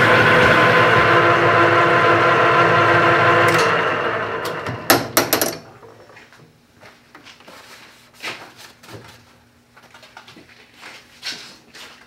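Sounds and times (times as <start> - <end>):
metal lathe running down: 0.0 - 6.0.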